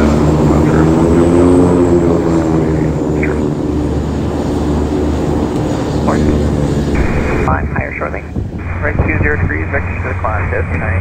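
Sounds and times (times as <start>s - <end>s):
jet engines droning: 0.0s - 11.0s.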